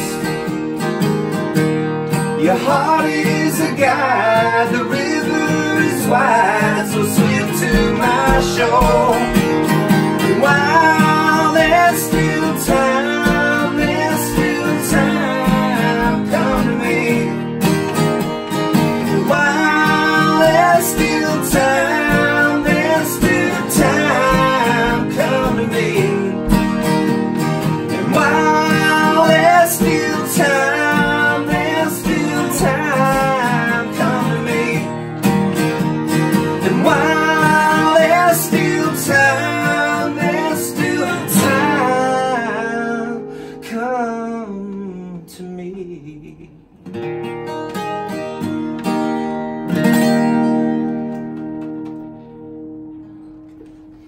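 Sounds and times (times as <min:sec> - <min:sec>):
acoustic guitars strummed: 0:00.0 - 0:54.0
men singing together: 0:02.4 - 0:17.7, 0:18.9 - 0:26.8, 0:27.9 - 0:35.0, 0:36.5 - 0:43.2.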